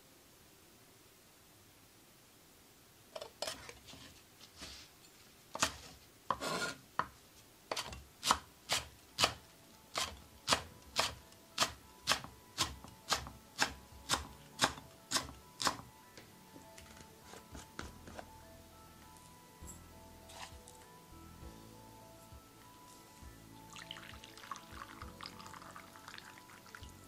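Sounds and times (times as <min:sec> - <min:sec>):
knife scraping board: 0:05.6 - 0:06.8, 0:07.7 - 0:09.4
knife chopping on wooden board: 0:05.6 - 0:07.1, 0:07.7 - 0:15.9.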